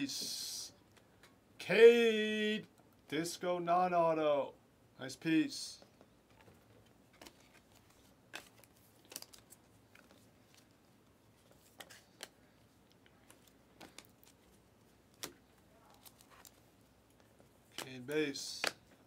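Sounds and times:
trading cards clicking and snapping: 17.7 - 18.9.

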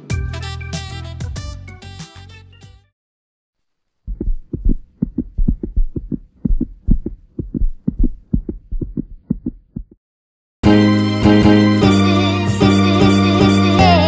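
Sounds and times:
fast low dull thumps: 4.1 - 10.0.

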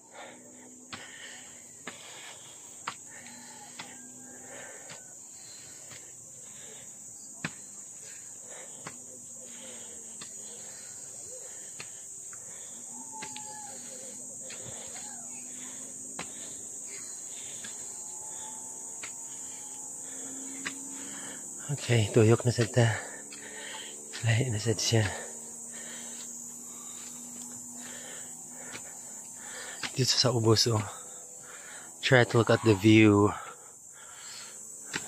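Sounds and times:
insects droning: 0.0 - 35.0
footsteps on concrete steps: 0.8 - 4.1, 11.4 - 19.2.

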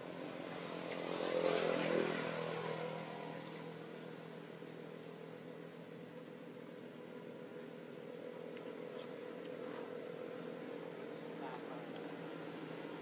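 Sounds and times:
motor vehicle passing: 0.0 - 4.6.

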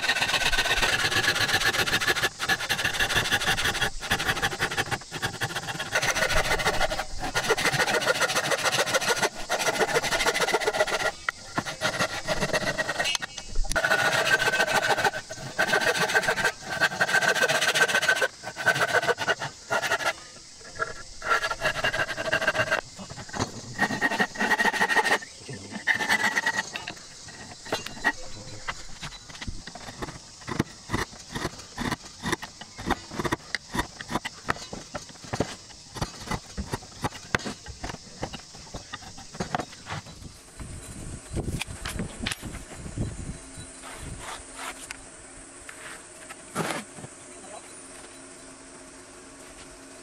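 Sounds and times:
hand saw rasping through wood: 0.0 - 20.2, 20.8 - 28.2, 29.7 - 39.5
chisel scraping wood: 0.0 - 40.1.

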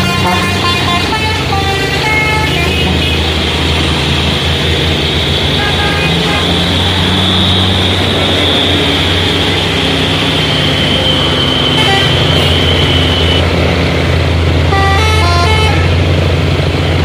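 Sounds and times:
multi-tone horn: 0.0 - 3.3, 5.6 - 8.8, 11.7 - 13.4, 14.7 - 16.0
truck diesel engines droning: 0.0 - 17.0.

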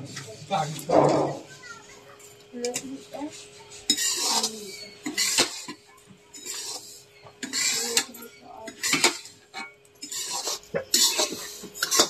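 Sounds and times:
hand mixing dough in steel plate: 2.6 - 12.0.

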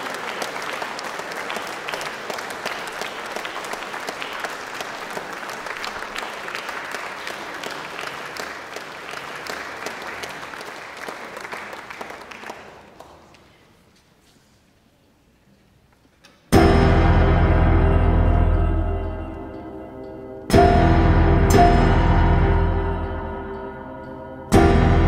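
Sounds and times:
audience applause: 0.0 - 13.6.

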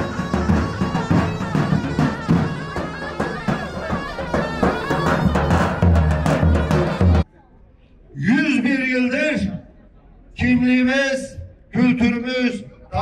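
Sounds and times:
deep drum beat: 0.0 - 7.3.

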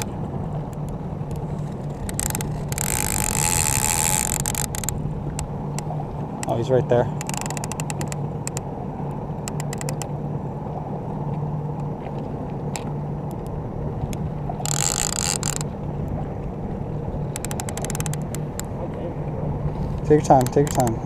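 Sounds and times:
boat motor humming: 0.0 - 21.0
fishing reel clicking: 1.3 - 5.0, 7.2 - 8.6, 9.5 - 10.1, 14.6 - 15.6, 17.3 - 18.7, 20.2 - 21.0.

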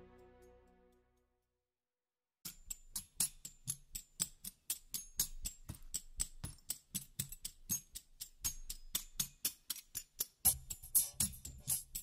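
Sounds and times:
percussive music track: 2.5 - 12.0.

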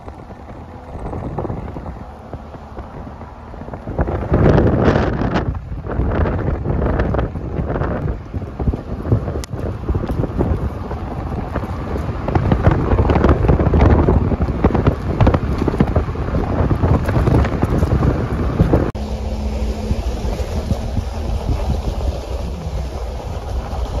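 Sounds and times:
wind buffeting microphone: 0.0 - 24.0
steady low hum: 18.5 - 24.0.

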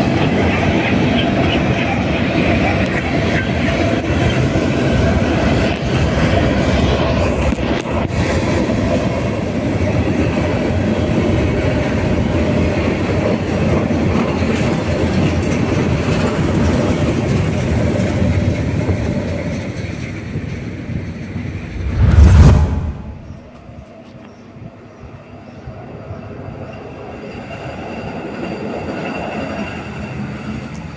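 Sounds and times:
train wheels rumbling on rails: 0.0 - 23.4
loud low thump: 21.7 - 23.4.

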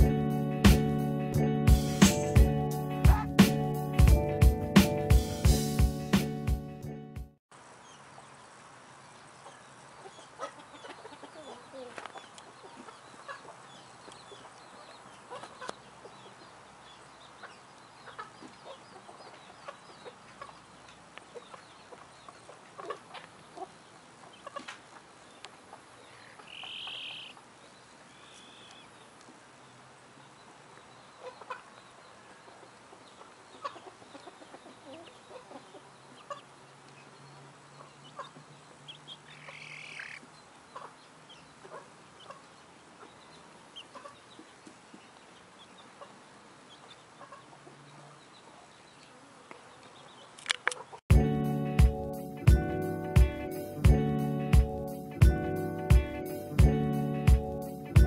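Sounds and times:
chickens clucking softly: 9.4 - 27.5, 31.0 - 37.1, 37.7 - 51.0
high-pitched chicken call: 26.4 - 27.4.

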